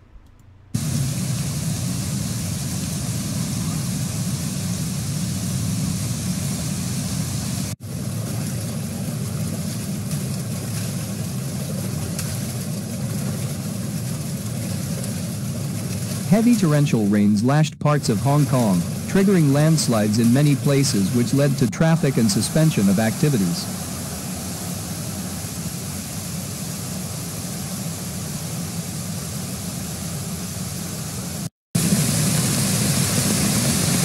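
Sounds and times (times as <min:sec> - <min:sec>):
torrential rain: 0:00.8 - 0:27.8
rushing floodwater: 0:07.6 - 0:25.8.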